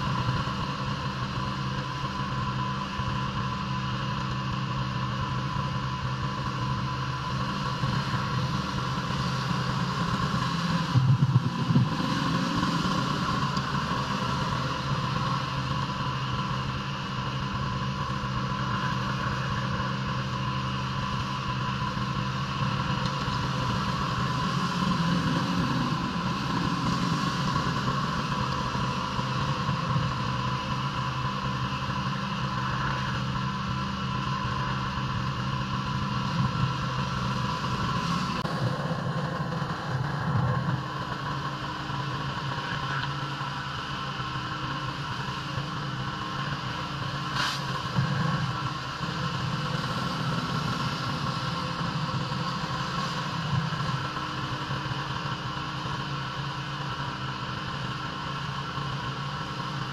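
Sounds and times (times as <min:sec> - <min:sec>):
pressure washer engine running: 0:04.7 - 0:59.9.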